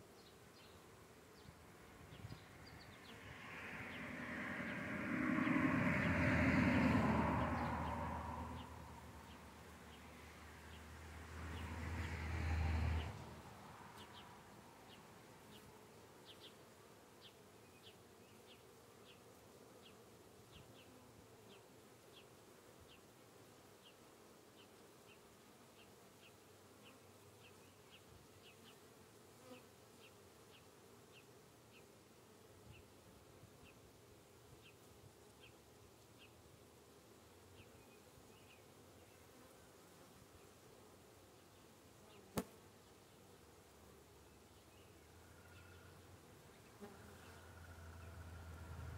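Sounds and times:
low rumble: 0:02.8 - 0:09.5.

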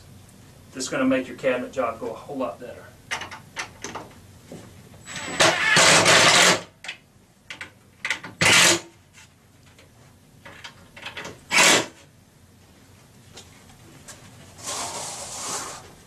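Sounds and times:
cordless drill driving screws: 0:05.1 - 0:06.6, 0:11.5 - 0:11.9.

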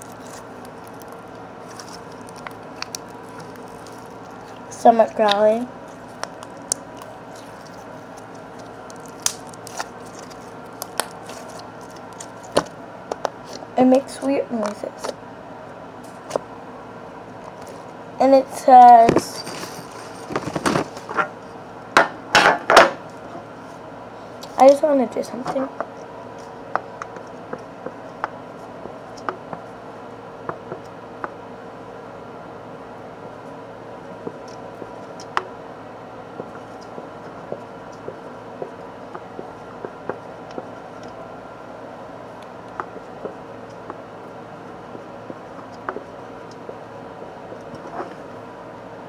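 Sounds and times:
slime popping and squelching: 0:00.0 - 0:13.3.

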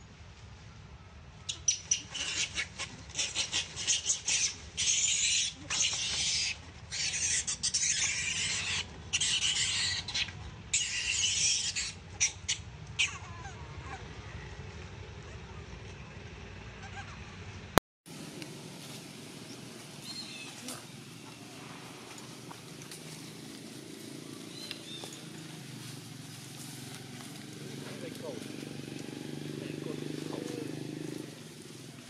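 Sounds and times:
infant monkey screaming: 0:01.5 - 0:14.5, 0:16.8 - 0:17.3.

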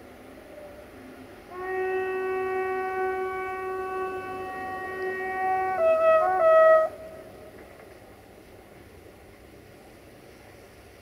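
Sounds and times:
train horn blast: 0:01.5 - 0:07.6.

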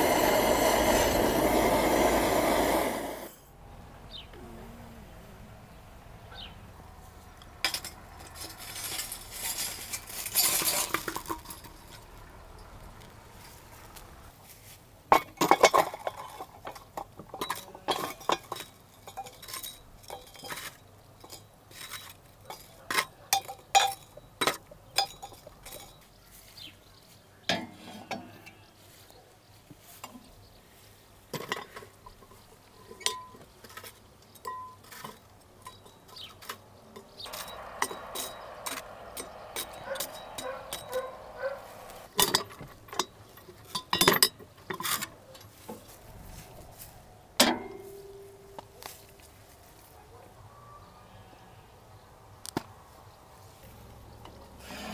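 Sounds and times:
utensils and dishes clinking: 0:15.2 - 0:26.0.

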